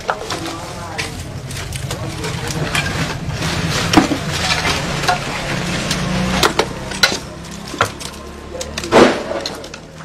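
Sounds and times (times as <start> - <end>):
low outdoor rumble: 0.0 - 10.0
rubble knocking and clattering: 0.0 - 10.0.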